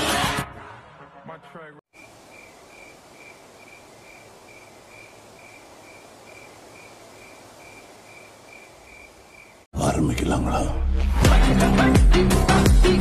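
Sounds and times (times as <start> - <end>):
cricket chirping: 1.9 - 9.7
faint night ambience hiss: 1.9 - 9.7.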